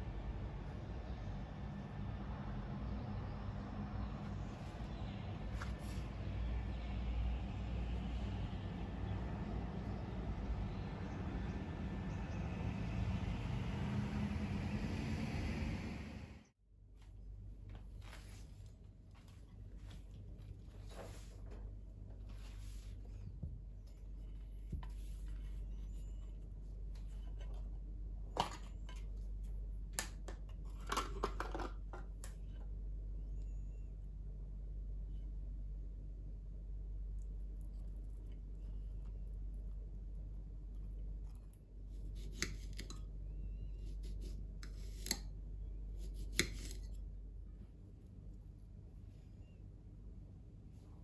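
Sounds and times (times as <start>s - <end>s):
low steady hum: 0.0s - 51.0s
knife slicing vegetables: 41.9s - 43.0s, 43.8s - 45.3s, 46.0s - 47.0s.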